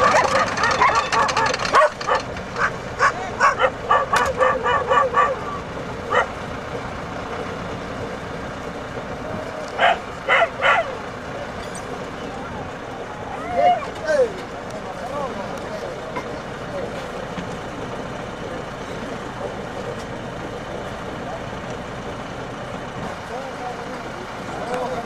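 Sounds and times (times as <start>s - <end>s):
dogs barking and yelping: 0.0s - 6.4s, 9.7s - 11.0s, 13.2s - 14.1s
vehicle engine running: 0.0s - 25.0s.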